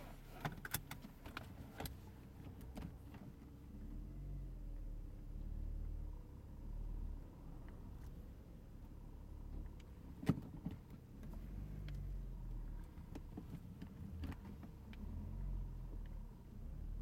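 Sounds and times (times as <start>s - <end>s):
car engine and tyres rumbling: 0.0s - 17.0s
light ticks: 11.2s - 12.0s.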